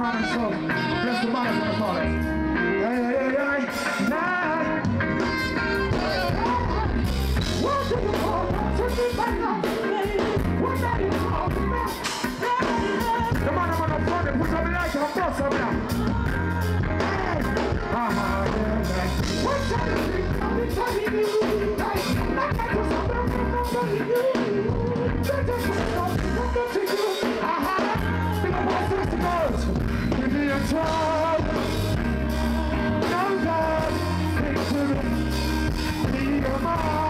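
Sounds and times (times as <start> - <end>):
heavy bass line: 0.0 - 26.8, 27.6 - 37.0
live reggae band: 0.0 - 37.0
man singing into a microphone: 0.0 - 37.0.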